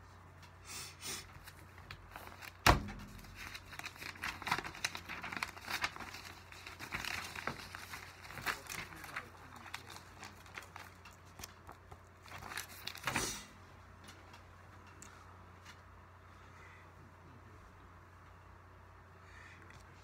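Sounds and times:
paper rustling and crinkling: 1.2 - 14.3.

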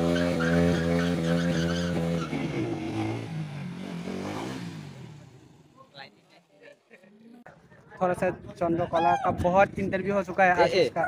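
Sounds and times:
motorcycle engine revving: 0.0 - 5.8.

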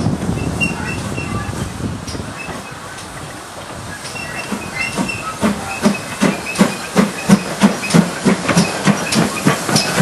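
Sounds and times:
steam locomotive exhaust chuffs: 0.0 - 10.0.

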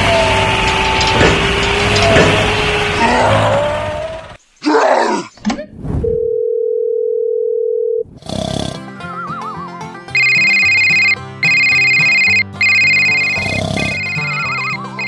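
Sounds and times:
phone ringtone ringing: 6.2 - 8.0, 10.1 - 15.0
music: 8.7 - 15.0
wobbling whistle: 9.0 - 10.5
steady beep: 10.1 - 15.0.

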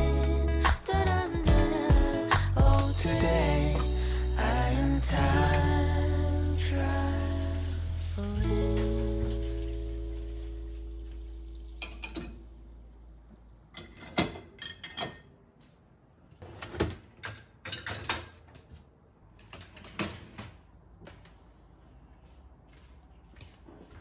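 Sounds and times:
dishes clinking and knocking: 11.8 - 12.4, 13.8 - 15.3, 17.2 - 18.4.

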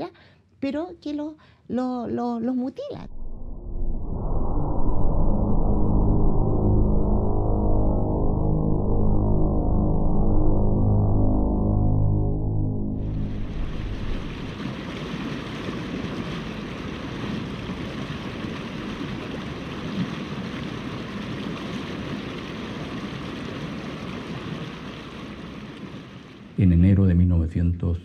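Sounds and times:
river water over rapids: 13.3 - 26.6.

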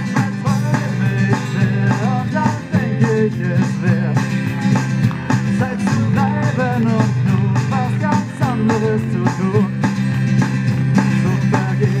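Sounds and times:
acoustic guitar: 0.0 - 12.0
keyboards: 0.0 - 12.0
steady drum beat: 0.0 - 12.0.

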